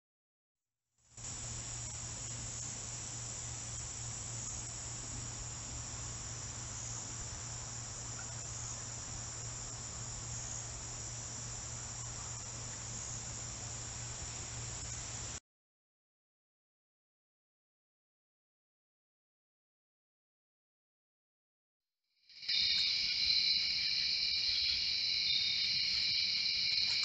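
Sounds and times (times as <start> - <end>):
low hum and hiss: 1.1 - 15.4
insects chorus: 1.2 - 15.4, 22.3 - 27.0.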